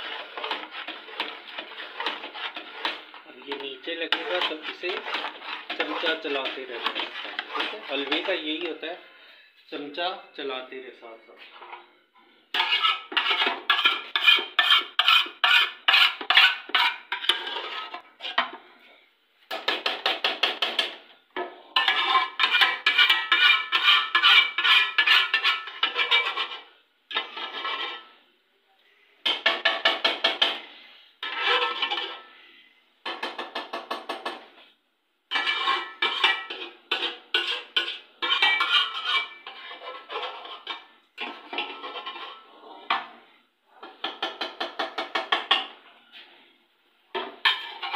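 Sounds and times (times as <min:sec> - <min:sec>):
metal spoon scraping metal bowl: 0:00.0 - 0:08.8, 0:12.5 - 0:18.4, 0:21.8 - 0:28.2, 0:31.2 - 0:32.3, 0:35.3 - 0:43.0, 0:47.4 - 0:47.9.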